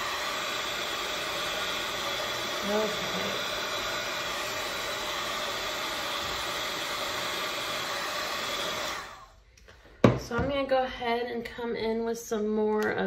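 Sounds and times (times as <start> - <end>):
fan winding down: 0.0 - 9.3
heat gun blowing: 0.0 - 9.4.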